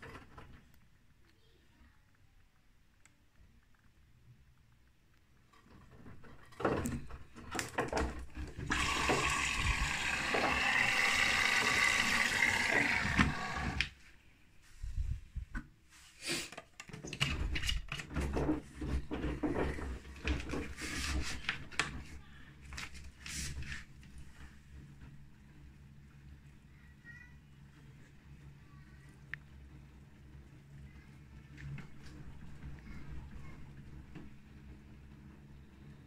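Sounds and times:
water rushing into washing machine: 6.6 - 14.0.

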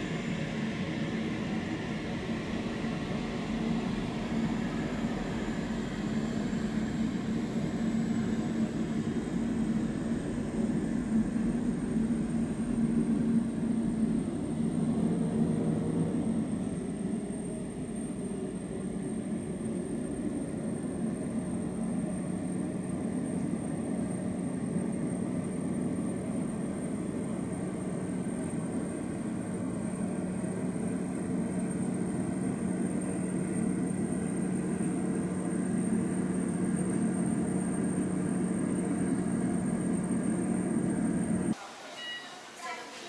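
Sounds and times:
jet engines humming with whine: 0.0 - 41.6.

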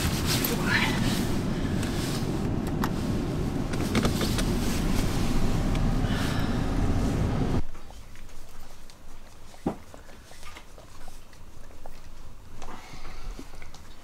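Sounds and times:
car engine and road noise: 0.0 - 7.7.

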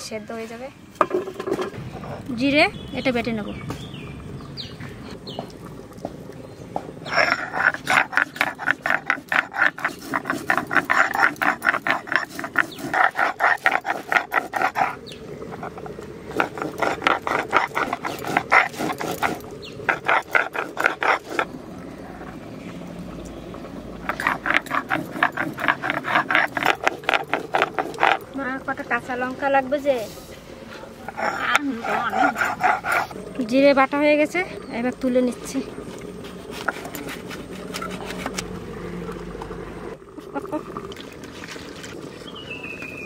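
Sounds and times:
stone rubbing on stone slab: 7.2 - 14.9, 15.6 - 21.5, 24.1 - 28.2, 36.2 - 38.4.

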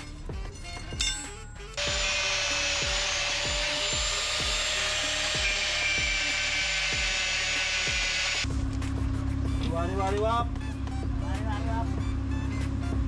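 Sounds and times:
music with regular beat: 0.0 - 2.1, 2.8 - 7.3
angle grinder cutting steel: 1.0 - 8.5.

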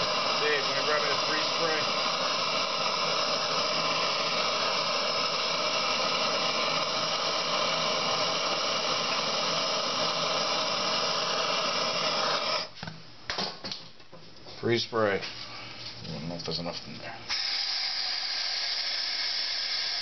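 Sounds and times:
gas torch flame hissing: 0.0 - 12.8, 17.3 - 20.0.

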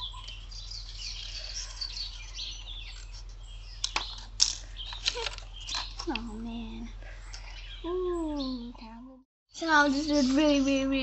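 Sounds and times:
birds chirping: 0.0 - 11.0
paper rustling: 0.6 - 6.4.

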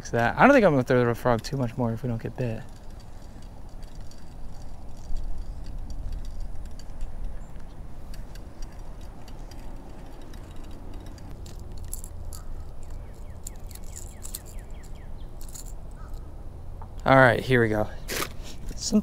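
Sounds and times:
wind rumble on microphone: 2.3 - 11.4
bird chirping: 12.2 - 16.4.

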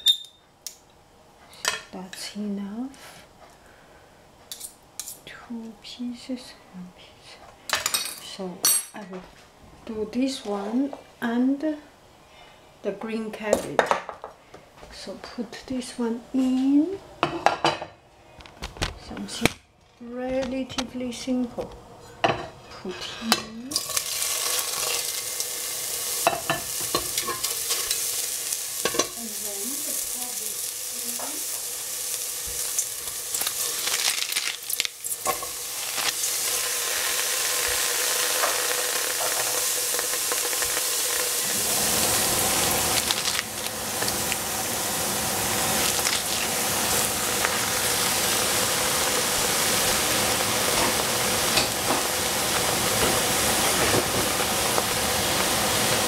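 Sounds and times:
vegetables sizzling in a frying pan: 22.3 - 56.0.

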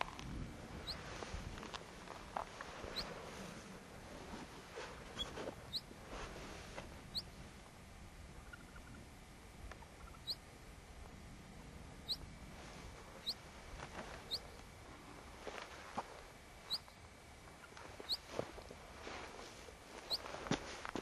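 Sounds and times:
soft rustling: 17.8 - 21.0.

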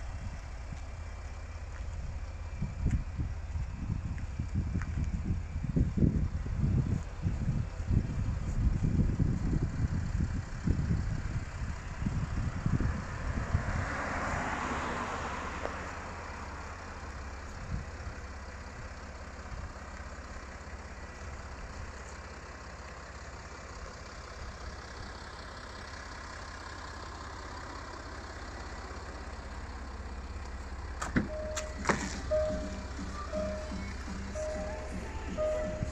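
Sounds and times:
steady low rumble: 0.0 - 13.6, 28.8 - 35.9
wind buffeting microphone: 2.0 - 13.8
car passing: 13.2 - 16.6.

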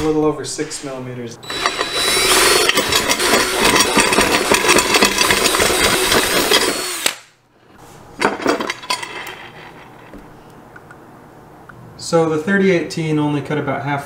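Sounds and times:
power drill boring through metal: 1.4 - 7.2.

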